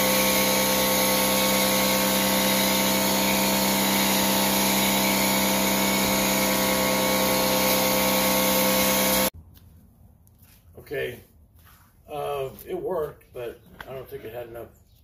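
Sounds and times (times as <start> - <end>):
pressure washer motor humming: 0.0 - 9.3.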